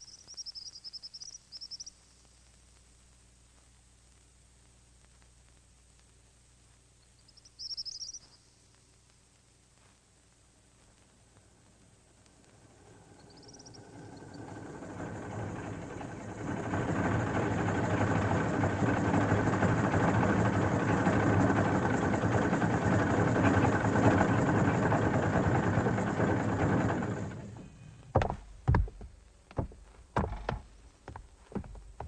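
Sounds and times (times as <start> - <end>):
rumbling mechanical noise: 9.8 - 32.0.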